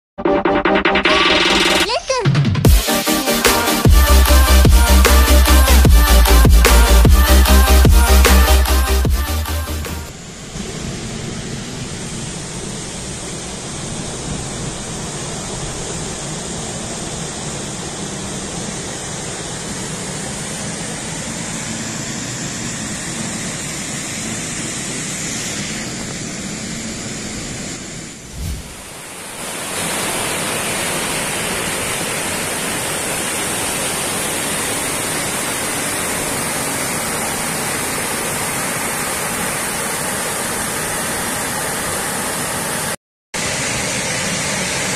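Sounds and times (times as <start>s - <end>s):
water rushing over weir: 28.2s - 44.9s.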